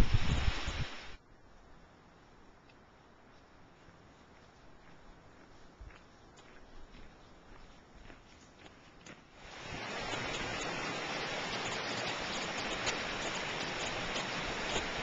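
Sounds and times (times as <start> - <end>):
mountain stream over rocks: 0.0 - 1.2, 9.4 - 15.0
footsteps on gravel: 3.4 - 15.0.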